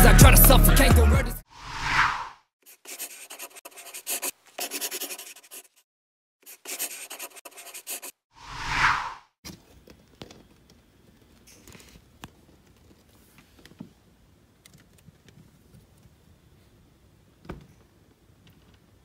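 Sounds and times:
faint small clicks and rustles: 9.5 - 16.2.

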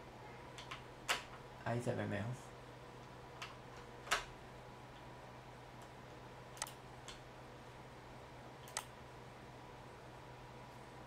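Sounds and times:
faint steady low hum: 0.0 - 11.0
computer mouse clicks: 6.6 - 7.2, 8.6 - 8.9.

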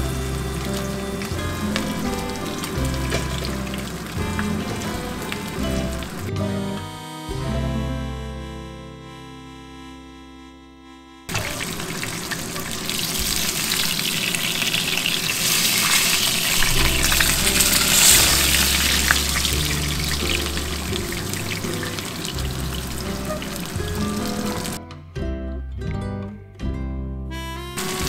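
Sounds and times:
fish sizzling in hot oil: 0.1 - 6.2, 11.3 - 24.8.

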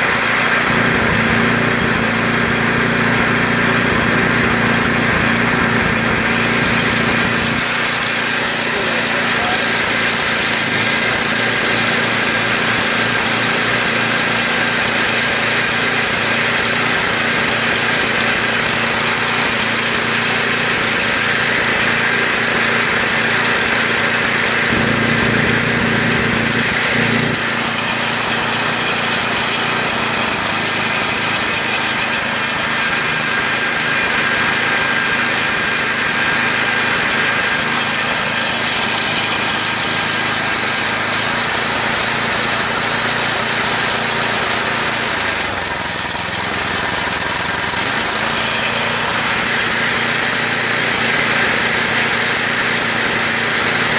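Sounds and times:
gas engine running steadily: 0.0 - 53.9.

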